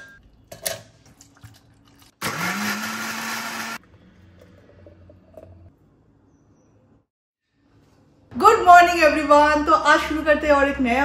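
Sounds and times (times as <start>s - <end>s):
electric blender motor whining: 2.2s - 3.8s.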